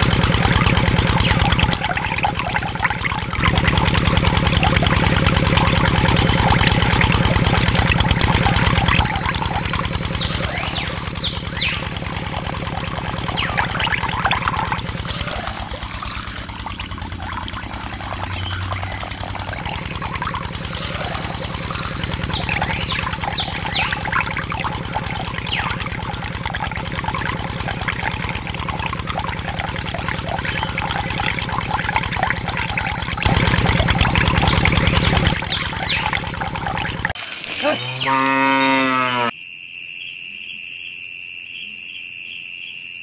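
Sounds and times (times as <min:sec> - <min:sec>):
steady low hum: 0:00.0 - 0:37.2
water pouring and splashing: 0:00.0 - 0:39.3
cow mooing: 0:37.6 - 0:39.3.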